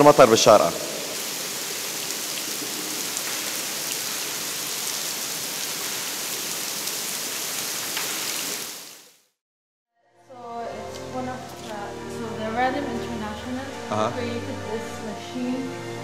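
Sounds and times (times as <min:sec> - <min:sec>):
water drips: 0:00.1 - 0:08.7
water splashing on floor: 0:00.9 - 0:09.2.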